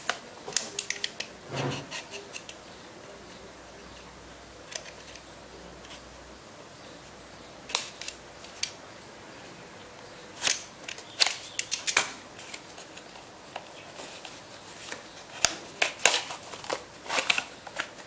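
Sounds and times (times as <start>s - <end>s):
cardboard scraping and rustling: 1.4s - 2.2s.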